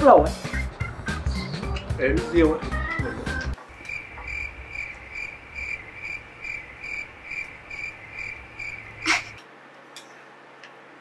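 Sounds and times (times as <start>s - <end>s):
cricket chirping: 3.6s - 9.4s.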